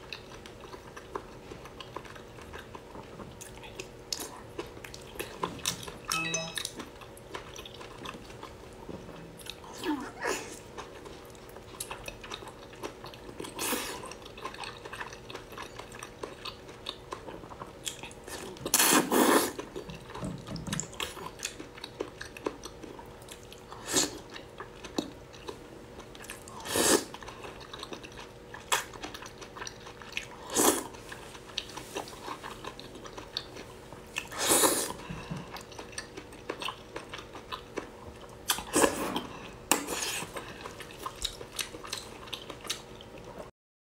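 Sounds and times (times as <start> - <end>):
soft wet chewing: 0.0 - 43.5.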